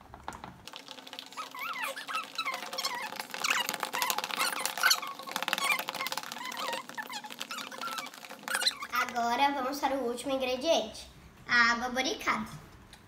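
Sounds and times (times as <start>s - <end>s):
spoons stirring in plastic tubs: 0.0s - 9.4s
squeaks: 1.3s - 9.0s.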